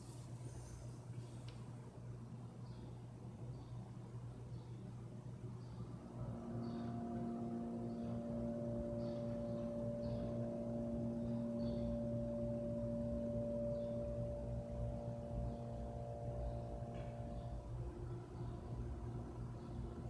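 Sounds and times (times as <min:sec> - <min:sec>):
low hum: 0:05.4 - 0:20.0
ringing drone of steady tones: 0:05.9 - 0:20.0.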